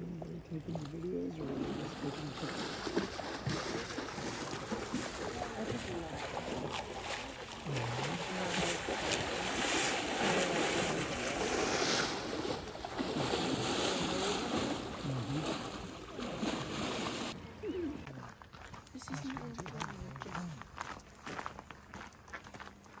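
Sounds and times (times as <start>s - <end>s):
water splashing and churning: 0.0s - 17.9s.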